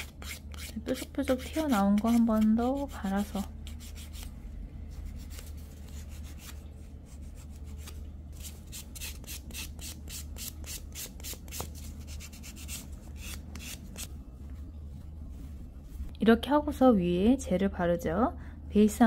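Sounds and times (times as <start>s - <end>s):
nail file rasping: 0.0s - 3.0s.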